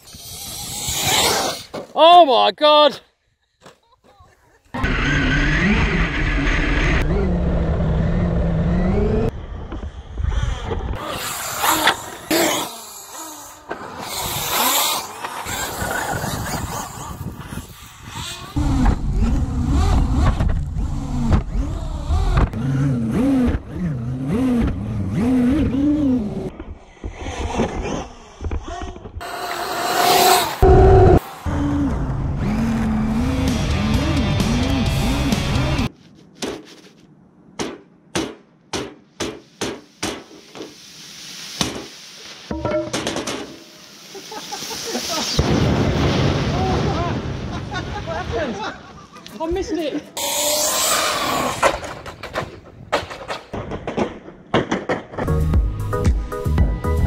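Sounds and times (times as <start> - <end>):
toy car motor revving: 0.0 - 1.7, 4.8 - 9.3, 10.5 - 26.5, 27.1 - 30.8, 50.2 - 51.9.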